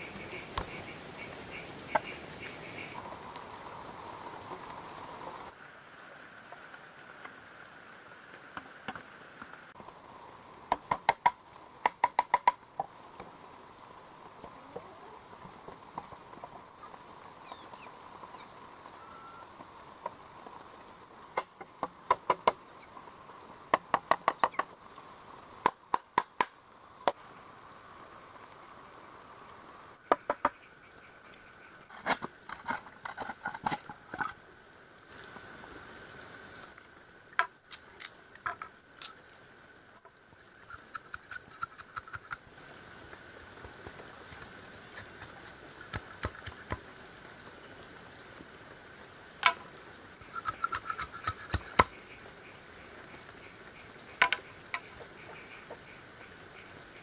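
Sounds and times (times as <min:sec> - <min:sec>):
hollow knocks on bamboo: 0:10.7 - 0:12.9, 0:30.1 - 0:30.6, 0:54.2 - 0:54.9.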